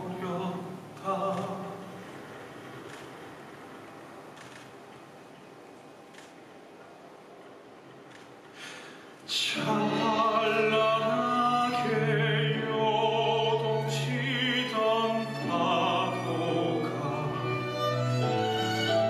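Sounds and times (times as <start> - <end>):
man singing with vibrato: 0.0 - 2.1, 9.3 - 18.0
orchestral strings accompaniment: 9.3 - 19.0.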